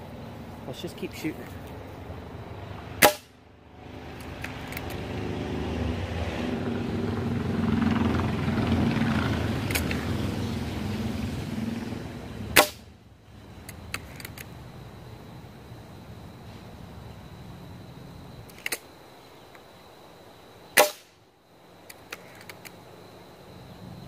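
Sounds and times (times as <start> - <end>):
low background noise: 0.0 - 5.5, 6.7 - 24.0
pellet gun shot: 3.0 - 3.4, 12.6 - 12.8, 20.8 - 21.1
small clicks: 4.2 - 5.0, 13.6 - 14.5, 21.8 - 22.8.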